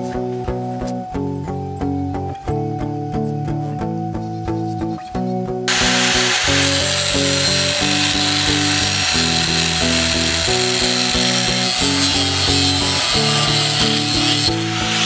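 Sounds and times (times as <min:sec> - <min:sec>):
guitar music: 0:00.0 - 0:15.0
angle grinder cutting steel: 0:05.7 - 0:15.0.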